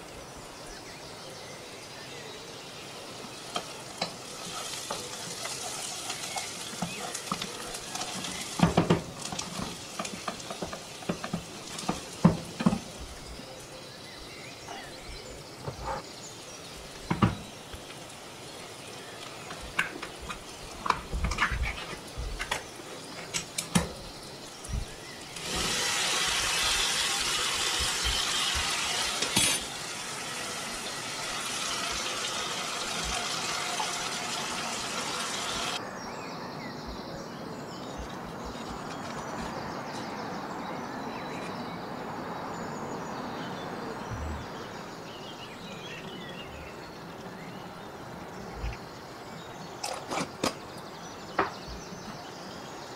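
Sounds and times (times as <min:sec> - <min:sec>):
pan sizzling: 0:03.2 - 0:13.4, 0:25.2 - 0:35.8
loud rushing hiss: 0:25.3 - 0:35.8.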